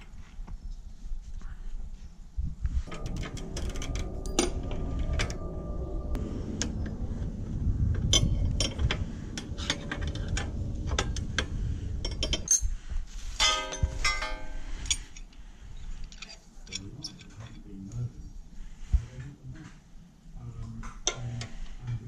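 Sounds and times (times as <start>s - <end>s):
ringing metallic rattle: 2.9s - 15.3s
metal parts and tools clinking: 8.1s - 17.6s.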